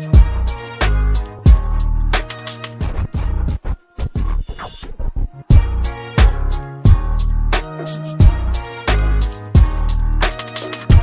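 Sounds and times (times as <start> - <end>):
music with heavy bass beat: 0.0 - 11.0.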